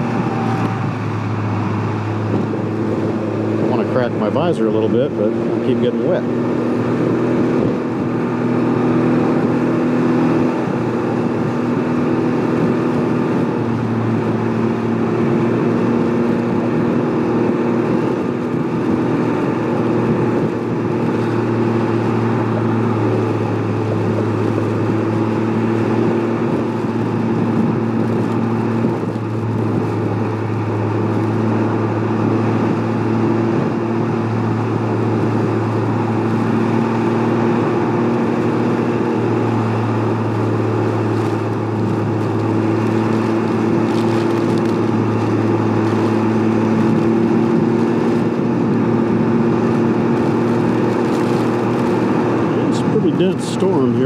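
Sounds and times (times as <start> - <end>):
motor trike engine cruising: 0.0 - 54.0
wind and rain rushing: 10.4 - 53.1.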